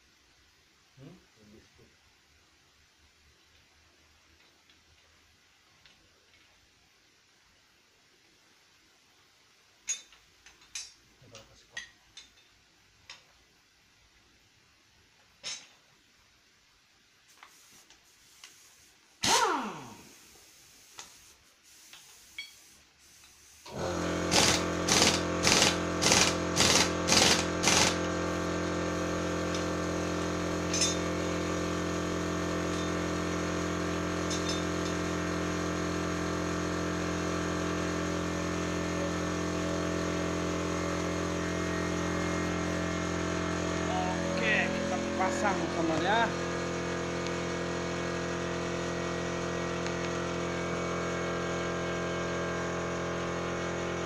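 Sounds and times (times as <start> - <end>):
pneumatic impact wrench bursts: 17.3 - 45.2
steady machine hum: 23.7 - 54.0.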